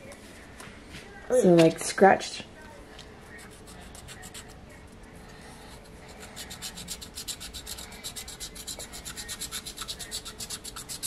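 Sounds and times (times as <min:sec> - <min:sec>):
stylus scratching card: 0:03.4 - 0:04.6, 0:05.7 - 0:11.0.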